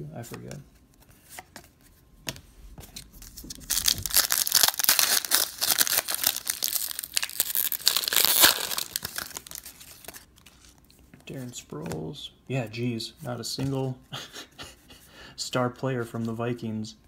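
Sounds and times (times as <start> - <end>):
wrapper tearing and crinkling: 3.5 - 10.3.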